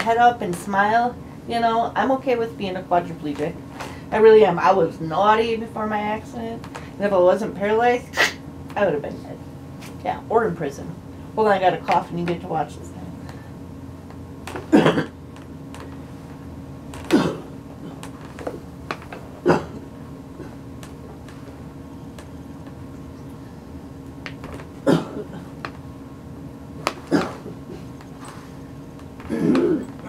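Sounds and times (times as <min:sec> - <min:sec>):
woman coughing hard: 0:14.7 - 0:15.2, 0:17.1 - 0:17.6, 0:19.4 - 0:19.9, 0:24.8 - 0:25.6, 0:27.1 - 0:27.5, 0:29.3 - 0:29.9.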